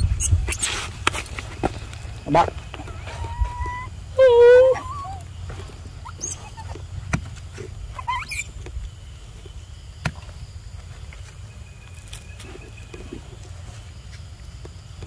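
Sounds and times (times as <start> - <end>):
monkey squeaks: 0.0 - 0.8, 2.9 - 5.2, 6.0 - 6.8, 8.0 - 8.6.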